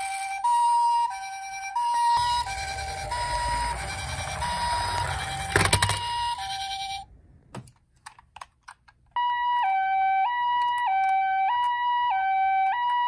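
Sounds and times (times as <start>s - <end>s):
toy two-tone siren: 0.0s - 7.1s, 9.2s - 13.0s
toy wheels rolling on wood: 2.2s - 7.0s.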